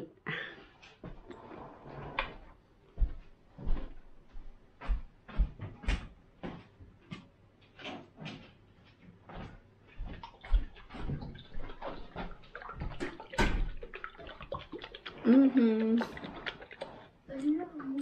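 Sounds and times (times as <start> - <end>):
household objects knocking and clattering: 10.0 - 14.8.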